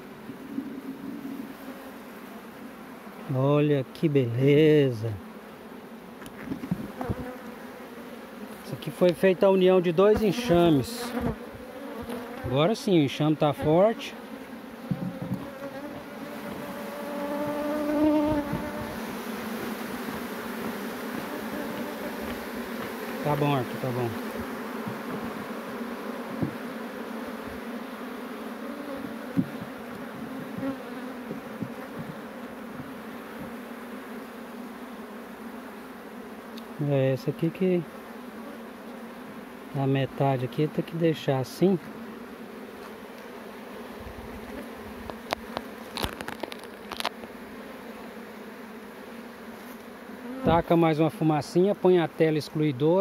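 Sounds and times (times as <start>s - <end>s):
honey bees buzzing: 0.0s - 53.0s
wooden frame knocks: 14.9s - 15.4s, 26.4s - 26.6s, 29.0s - 32.2s.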